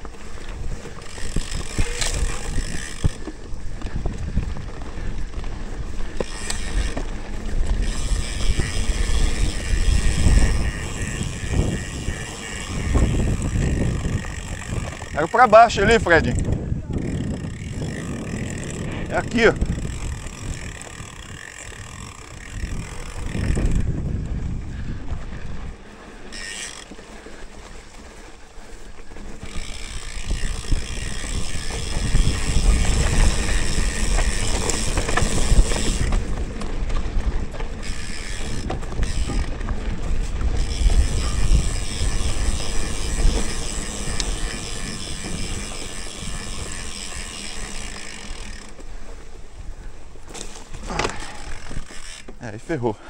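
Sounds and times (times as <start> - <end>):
bike rattling over bumps: 0.0 - 53.0
freewheel ratchet ticking: 0.9 - 4.4, 5.8 - 24.0, 26.3 - 27.0, 29.3 - 36.6, 37.8 - 48.9.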